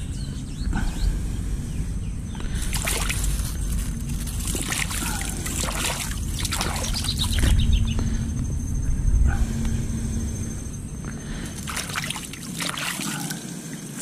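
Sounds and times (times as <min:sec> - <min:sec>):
water sloshing and splashing: 0:02.4 - 0:08.2, 0:11.0 - 0:14.0
water trickling: 0:02.5 - 0:07.6, 0:11.4 - 0:14.0.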